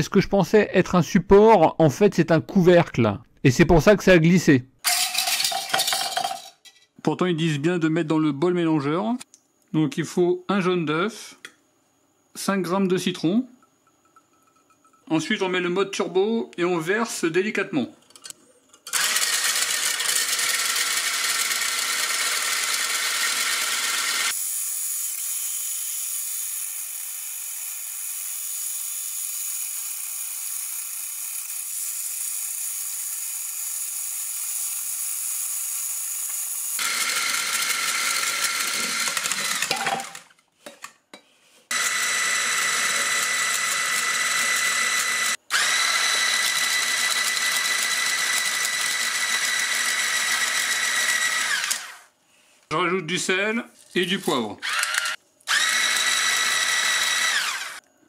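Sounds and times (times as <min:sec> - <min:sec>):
hand blender motor whine: 0:18.9 - 0:40.2, 0:41.7 - 0:52.1, 0:54.6 - 0:57.9.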